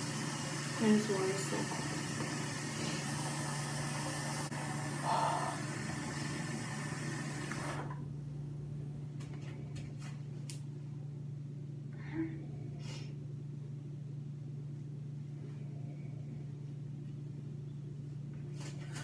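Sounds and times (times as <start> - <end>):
tap water running into sink: 0.0 - 5.0, 5.6 - 7.9
steady low hum: 0.0 - 19.0.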